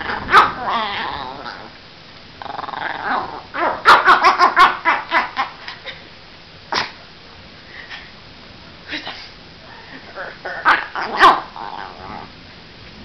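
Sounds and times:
small dog growling: 0.0s - 1.8s, 2.4s - 3.8s, 10.0s - 12.4s
dog barking sharply: 3.7s - 4.7s.

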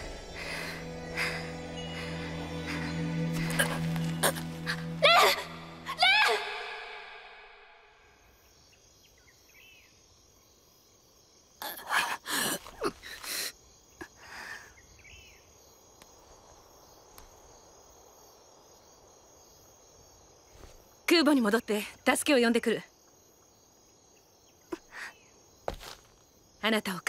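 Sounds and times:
music: 0.0s - 6.6s
crickets chirping: 0.0s - 27.0s.

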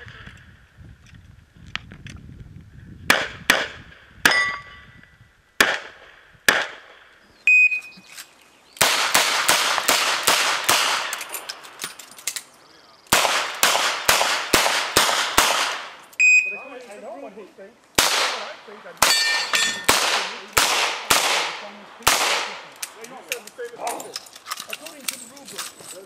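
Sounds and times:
metallic ring of steel targets: 4.3s - 5.0s, 19.0s - 19.9s
revolver gunshots: 5.6s - 7.1s, 8.8s - 11.8s, 13.1s - 16.0s, 18.0s - 22.7s.

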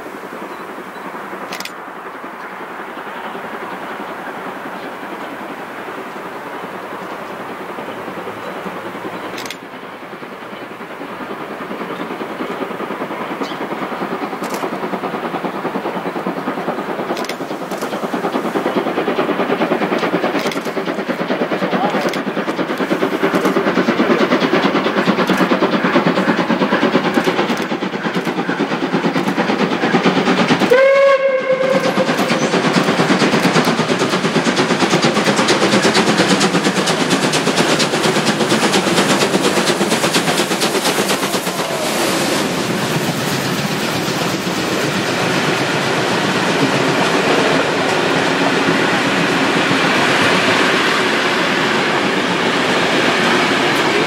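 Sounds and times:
steam locomotive chuffing: 0.0s - 54.0s
train coaches rolling past: 0.0s - 54.0s
steam whistle blast: 30.7s - 32.1s.

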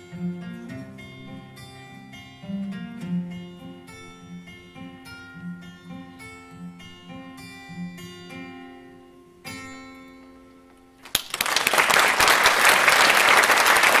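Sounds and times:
acoustic guitar picking: 0.0s - 11.0s
audience applause: 11.0s - 14.0s.

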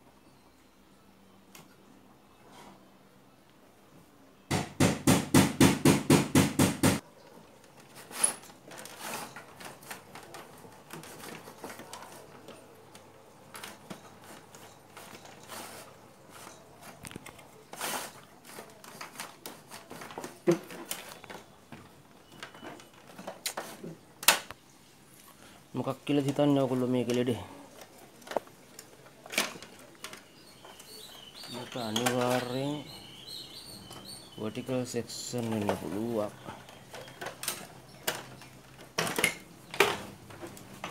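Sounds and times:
rapid knocks on television chassis: 4.5s - 7.0s
plastic clicks and rattles: 35.4s - 40.9s.

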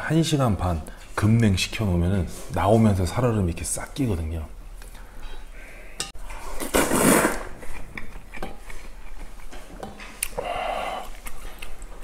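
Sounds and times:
slurping broth from a bowl: 6.4s - 8.0s.

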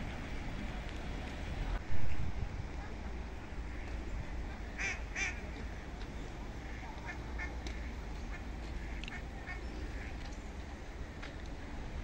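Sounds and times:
steady low rumble: 0.0s - 12.0s
ducks quacking: 4.8s - 5.7s, 6.6s - 10.2s.

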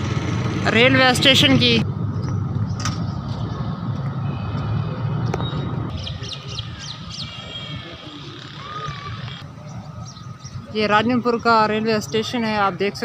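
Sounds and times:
birds chirping and whistling: 4.7s - 12.4s.

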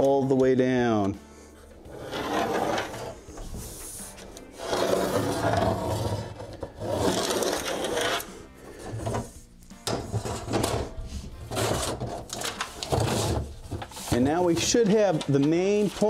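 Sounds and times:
pencil scratching along straightedge: 1.8s - 8.4s
straightedge sliding on board: 1.9s - 9.3s.

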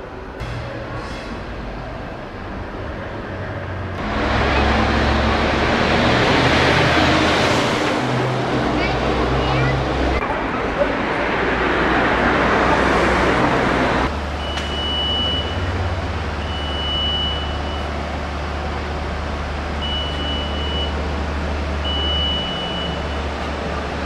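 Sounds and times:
loud rushing noise: 0.0s - 14.4s
alarm beeping: 14.4s - 15.7s, 16.4s - 17.9s, 19.8s - 21.0s, 21.8s - 23.2s.

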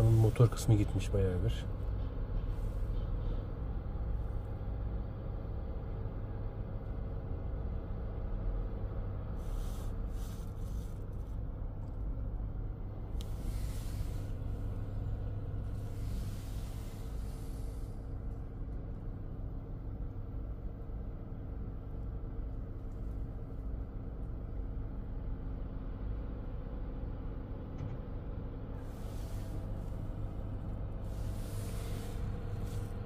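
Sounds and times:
fire engine low drone: 0.0s - 33.0s.

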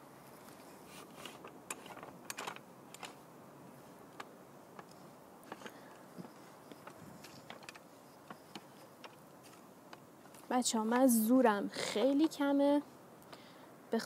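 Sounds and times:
tripod clamp clicks and creaks: 1.2s - 3.2s, 4.2s - 10.4s.

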